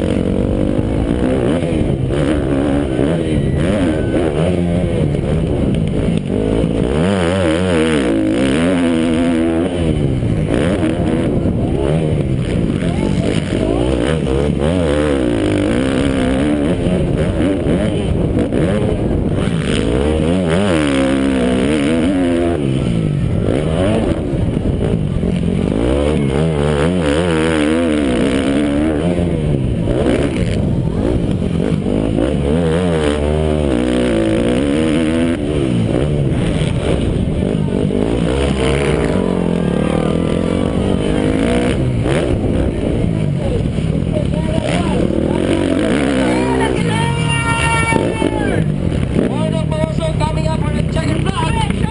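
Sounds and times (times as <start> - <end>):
motocross bike engine revving: 0.0 - 51.9.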